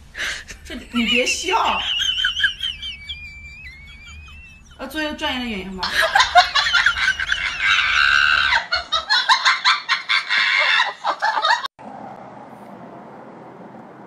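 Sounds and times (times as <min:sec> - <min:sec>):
faint steady hiss: 0:00.0 - 0:07.3
man laughing hysterically: 0:00.2 - 0:04.8, 0:05.8 - 0:11.7.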